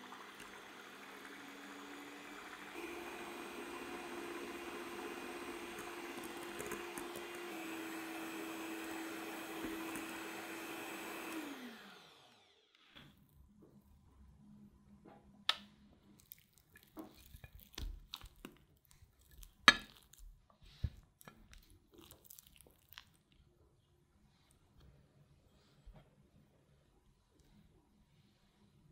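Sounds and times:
electric hand mixer whipping: 0.0s - 12.6s.

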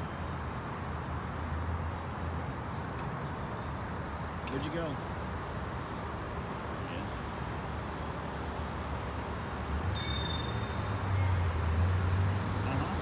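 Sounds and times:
street traffic noise: 0.0s - 13.0s
vehicle engine approaching: 9.2s - 13.0s
brief high-pitched squeal: 10.0s - 10.9s.

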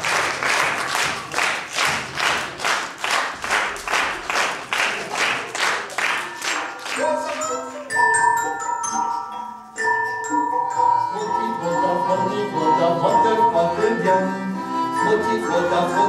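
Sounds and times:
rhythmic claps: 0.0s - 11.8s
ringing bell-like tones: 6.2s - 14.2s.

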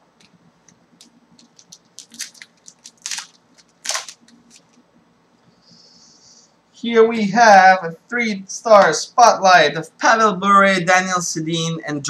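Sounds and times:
card pack wrapper crinkling: 1.0s - 4.8s.

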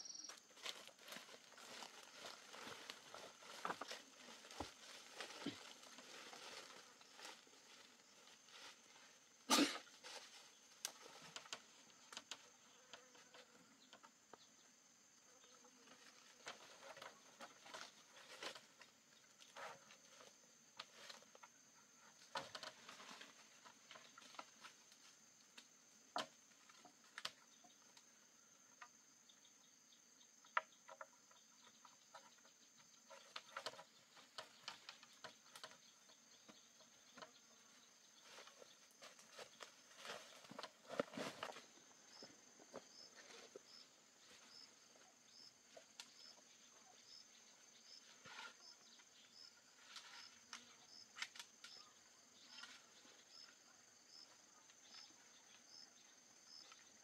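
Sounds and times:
rustling in leafy undergrowth: 0.3s - 12.1s, 37.5s - 45.9s.

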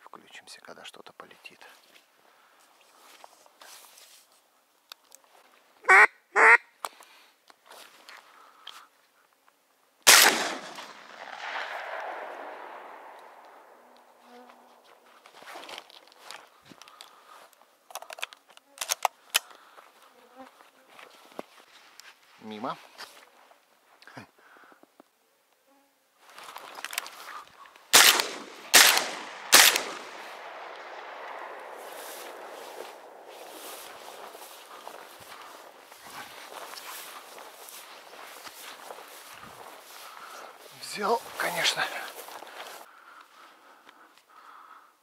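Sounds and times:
rustling handling noise: 1.7s - 5.6s, 14.7s - 17.2s, 31.8s - 42.9s
shotgun shot: 10.1s - 13.9s, 27.9s - 33.6s
gunshot echo: 10.1s - 14.2s, 27.9s - 35.0s.

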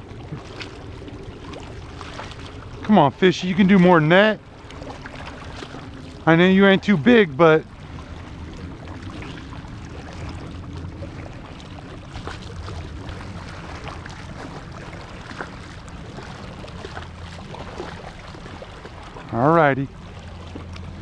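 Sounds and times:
waves lapping against rocks: 0.0s - 21.0s.

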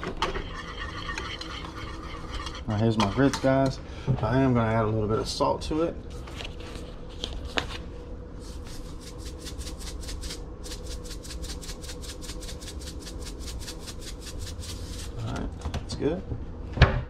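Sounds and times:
wire whisk stirring in saucepan: 0.2s - 3.7s, 8.6s - 15.2s.

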